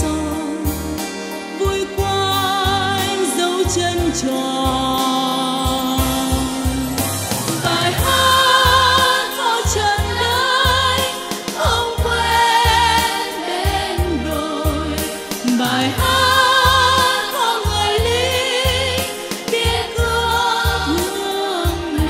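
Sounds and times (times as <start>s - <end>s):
band with steady bass beat: 3.8s - 21.1s.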